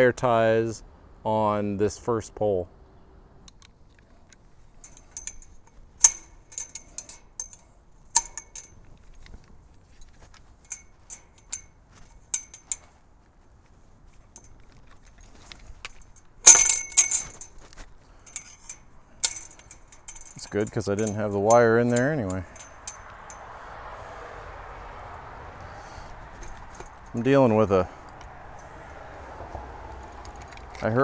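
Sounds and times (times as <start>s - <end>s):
metal wire clinking and rattling: 3.5s - 13.0s, 14.1s - 23.8s, 26.3s - 31.0s.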